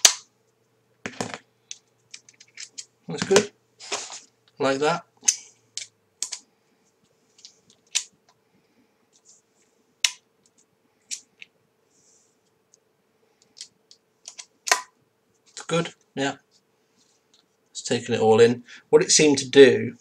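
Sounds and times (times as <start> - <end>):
faint steady hum: 0.0 - 20.0.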